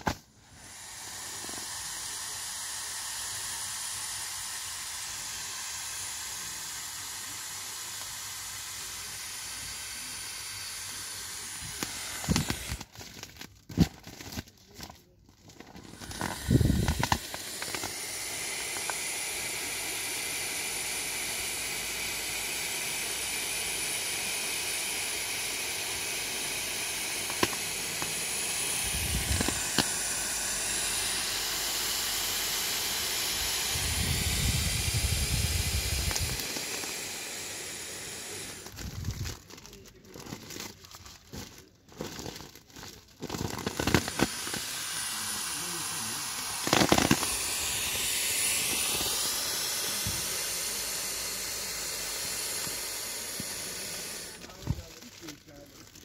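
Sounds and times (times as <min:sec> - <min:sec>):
air hissing from a valve: 0:00.0 - 0:13.4, 0:15.5 - 0:39.8, 0:43.2 - 0:55.6
plastic crinkling: 0:11.8 - 0:18.0, 0:38.4 - 0:49.2, 0:54.3 - 0:56.0.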